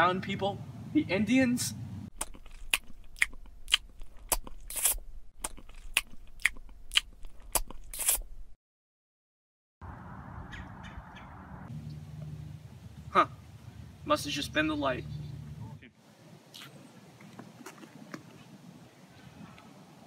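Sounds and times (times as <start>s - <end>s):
faint outdoor hiss: 0.0s - 2.1s, 11.7s - 20.0s
sharp crunches: 2.1s - 8.6s.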